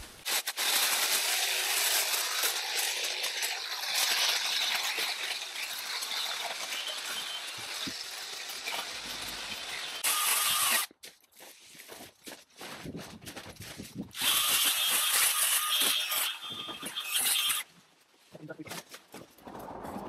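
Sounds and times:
hedge trimmer cutting hedge: 0.2 - 10.9, 14.2 - 17.7.

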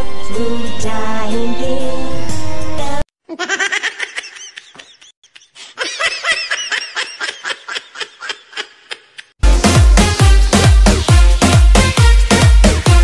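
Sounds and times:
high-pitched giggling: 3.2 - 9.4
beat-driven dance music: 9.4 - 13.0.

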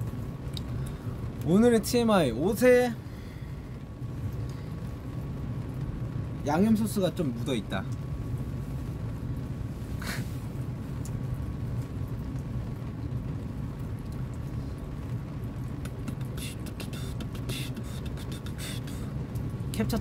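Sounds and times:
car cabin rumble: 14.8 - 20.0.

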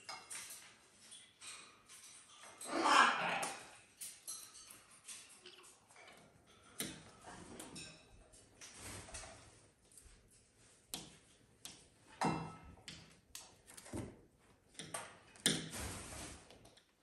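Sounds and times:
animals scuffling on blankets: 8.5 - 10.7.

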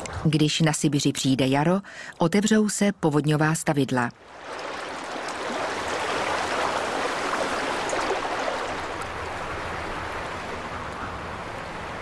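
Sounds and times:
river water rushing: 4.2 - 12.0.

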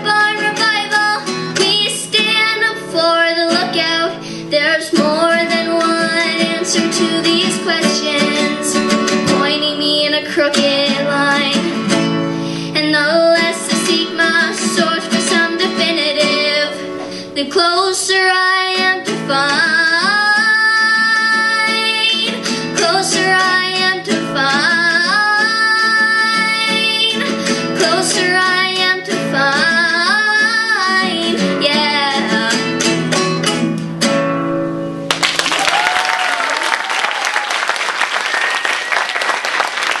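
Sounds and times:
girl singing: 0.0 - 32.9
acoustic guitar strumming: 0.0 - 35.2
audience applause: 35.1 - 40.0.

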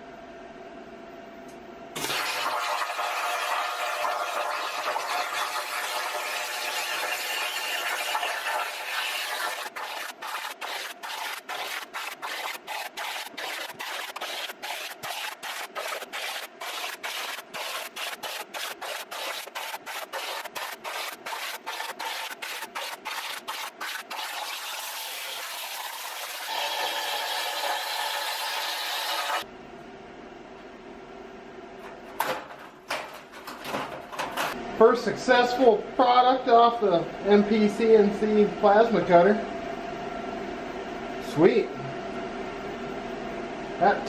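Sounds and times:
plasma cutter arc hissing: 4.3 - 29.4.

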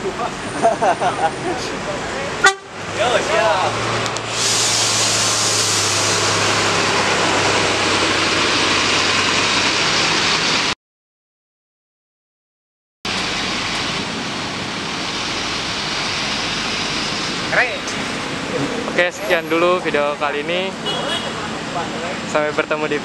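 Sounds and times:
bus engine pulling out: 0.0 - 10.8, 13.1 - 23.0.

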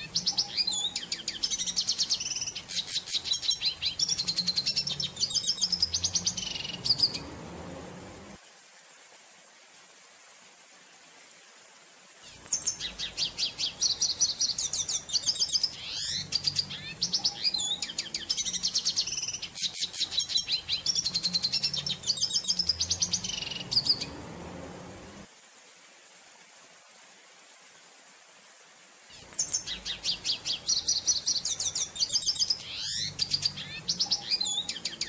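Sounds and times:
bird twittering song: 0.0 - 7.8, 12.3 - 24.2, 29.1 - 35.0
faint background hiss: 0.0 - 35.0.

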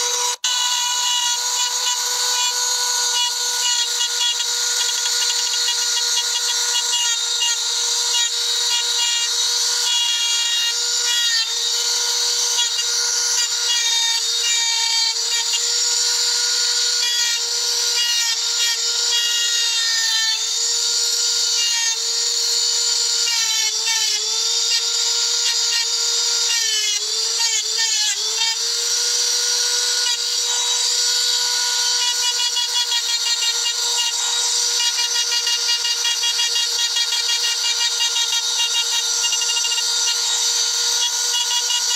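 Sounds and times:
high-pitched grinder motor whine: 0.0 - 41.9.

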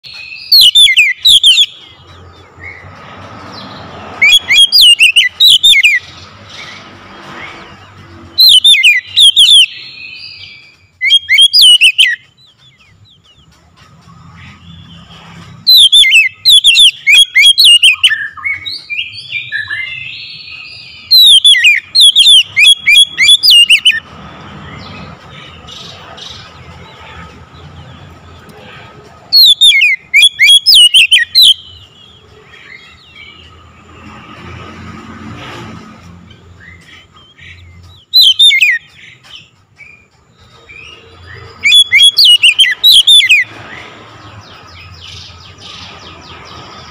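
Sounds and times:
bird singing whistled phrases: 0.1 - 1.8, 4.2 - 6.0, 8.4 - 12.3, 15.7 - 24.0, 29.4 - 31.9, 37.5 - 39.0, 40.8 - 43.5.

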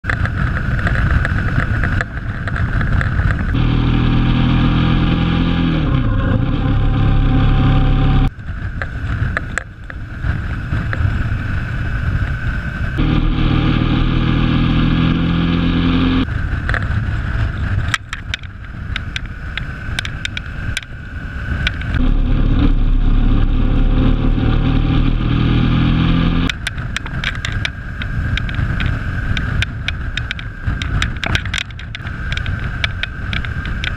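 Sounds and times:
motorbike engine: 0.0 - 33.9
wind buffeting microphone: 8.3 - 13.1, 16.2 - 33.9.

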